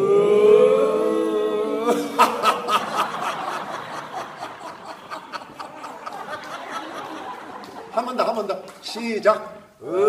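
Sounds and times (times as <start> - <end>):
man holding a long vowel: 0.0 - 2.3
man laughing rhythmically: 1.9 - 8.4.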